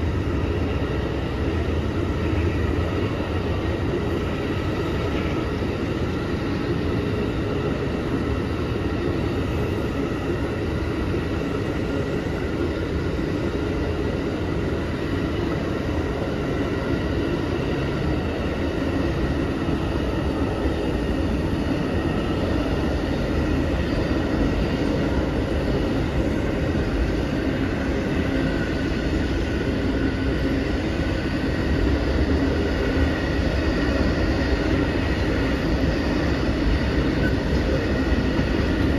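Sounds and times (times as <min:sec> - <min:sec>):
train wheels rumbling on rail: 0:00.0 - 0:38.9.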